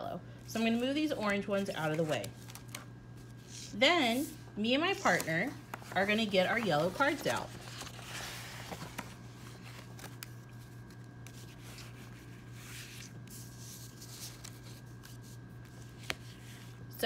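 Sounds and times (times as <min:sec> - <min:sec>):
steady low hum: 0:00.0 - 0:17.0
plastic sleeves and paper shuffling: 0:00.4 - 0:17.0.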